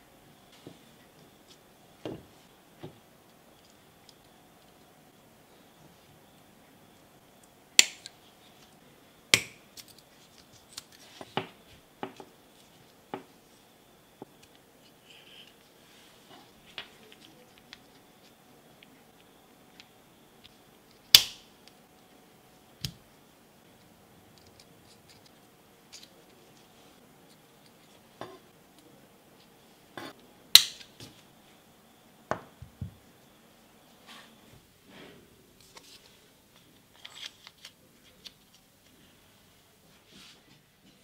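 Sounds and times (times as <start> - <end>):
loud metal snaps: 30.6 - 30.9.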